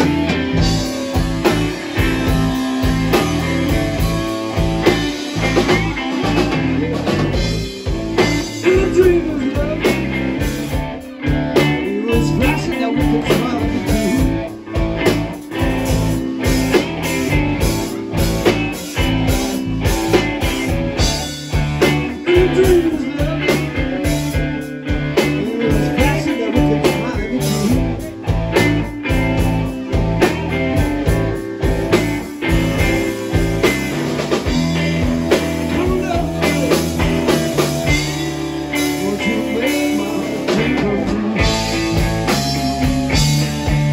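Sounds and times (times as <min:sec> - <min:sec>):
bass guitar: 0:00.0 - 0:43.9
drum kit beat: 0:00.0 - 0:43.9
electric guitars: 0:00.0 - 0:43.9.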